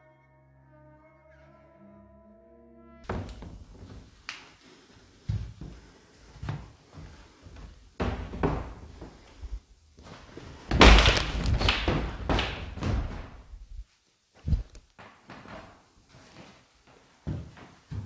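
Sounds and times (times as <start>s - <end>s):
dull thumps and knocks: 8.0s - 9.1s, 10.7s - 13.6s.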